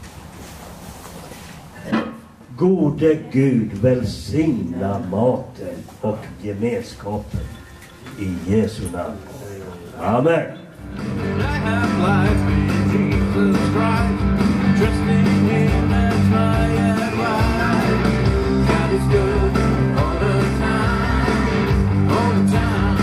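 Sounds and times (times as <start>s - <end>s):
rock music with electric guitar: 10.8s - 23.0s
person singing: 11.2s - 23.0s.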